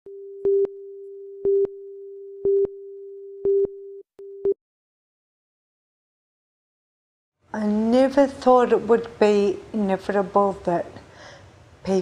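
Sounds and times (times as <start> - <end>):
steady single-pitched tone: 0.1 - 4.6.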